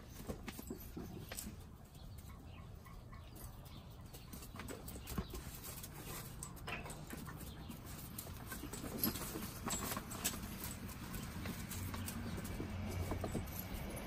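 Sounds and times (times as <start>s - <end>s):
puppy paws pattering on pavers: 0.0s - 14.0s.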